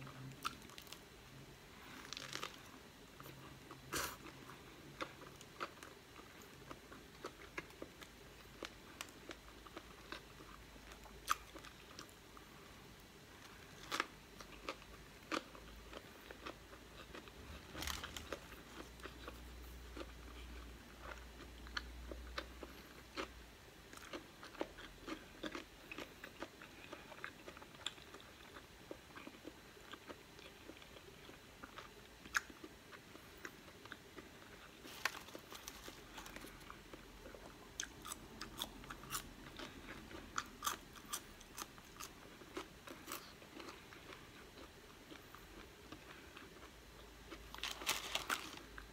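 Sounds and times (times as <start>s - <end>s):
person chewing food: 1.7s - 48.9s
fry crunching: 1.8s - 4.4s, 13.8s - 20.4s, 34.0s - 44.2s, 47.3s - 48.9s.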